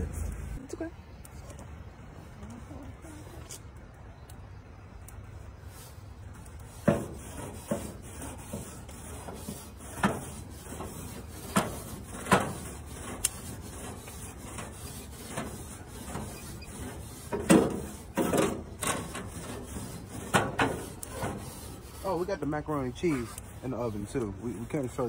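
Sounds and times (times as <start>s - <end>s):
scraping on metal grill grates: 5.4s - 25.0s.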